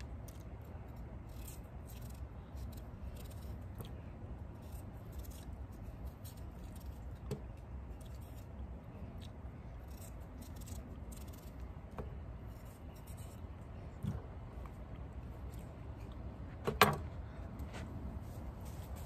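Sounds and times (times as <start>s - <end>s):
knife scraping potato skin: 0.1s - 13.6s.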